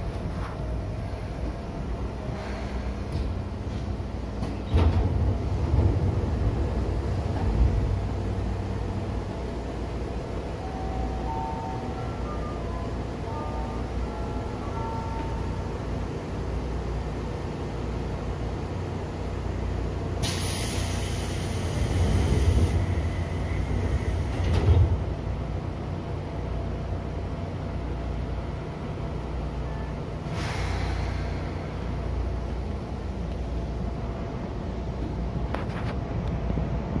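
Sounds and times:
train wheels rumbling on rails: 0:00.0 - 0:37.0
air hiss: 0:20.2 - 0:23.6, 0:30.3 - 0:31.9.

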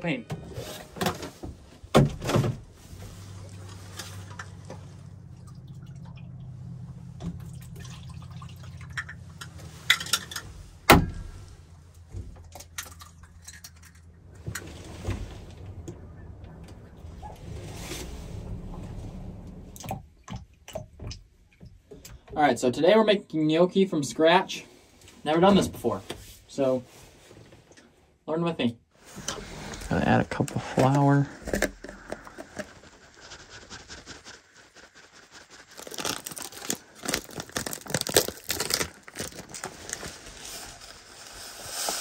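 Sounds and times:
low hum: 0:02.7 - 0:20.4.

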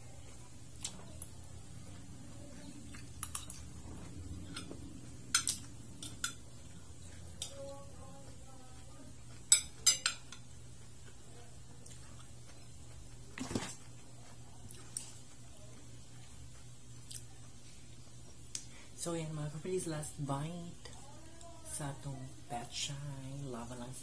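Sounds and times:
cutlery clinking on a plate: 0:09.4 - 0:10.5.

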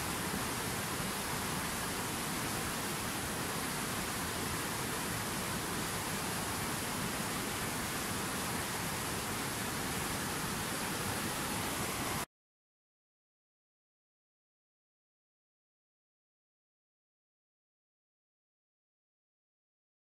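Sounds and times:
river rushing over rocks: 0:00.0 - 0:12.2.

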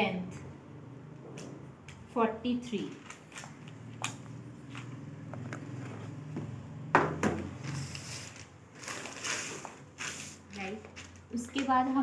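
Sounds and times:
handling and rustling: 0:07.5 - 0:11.9.

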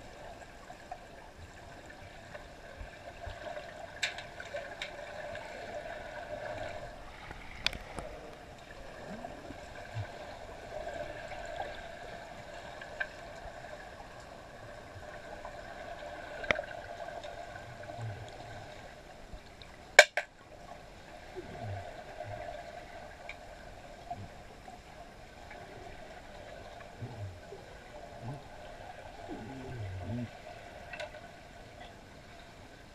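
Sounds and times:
sharp underwater clicks: 0:20.0 - 0:20.4
underwater two-note hum: 0:26.7 - 0:31.0.

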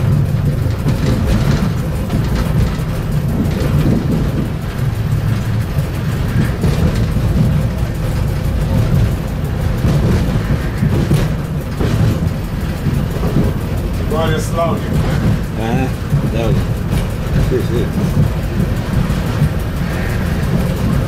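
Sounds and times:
train rumbling on rails: 0:00.0 - 0:21.0.

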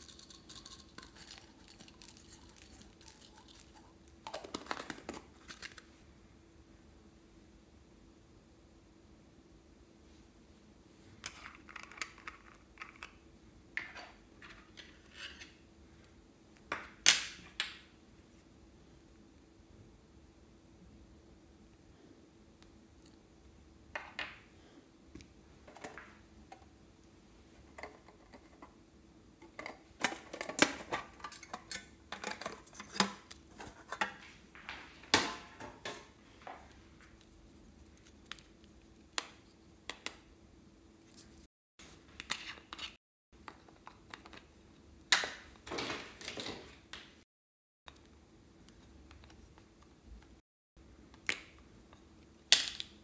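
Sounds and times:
metal spoon scraping containers: 0:00.0 - 0:05.8.

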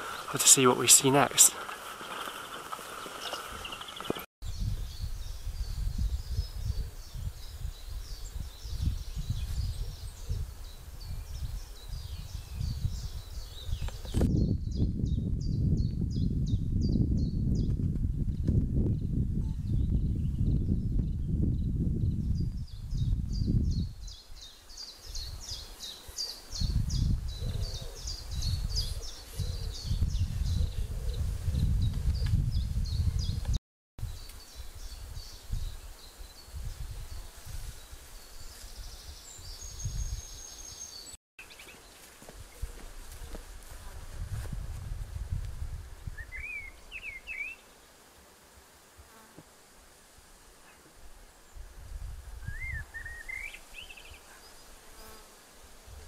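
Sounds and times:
small birds chirping: 0:00.0 - 0:17.8, 0:34.1 - 0:42.8, 0:52.4 - 0:55.2
small bird chirping: 0:01.9 - 0:10.4
wind on microphone: 0:03.2 - 0:40.8, 0:42.4 - 0:47.4, 0:51.5 - 0:54.2.

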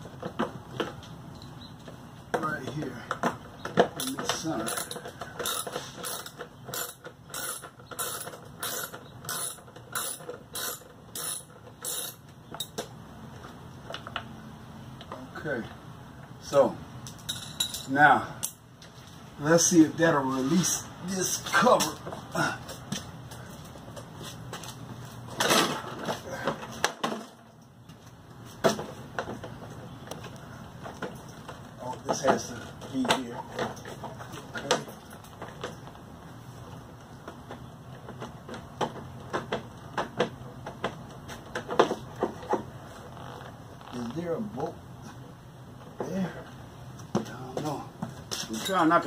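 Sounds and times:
ratchet wrench clicking: 0:04.0 - 0:12.8.

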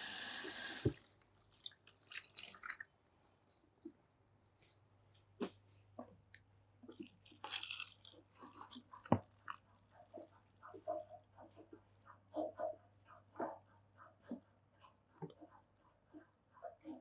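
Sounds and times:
wet hair squishing: 0:01.0 - 0:02.9, 0:06.9 - 0:11.0.

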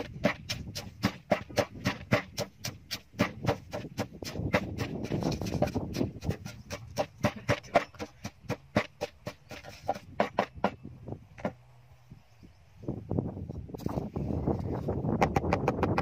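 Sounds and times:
wooden pestle pounding in mortar: 0:00.0 - 0:10.8.

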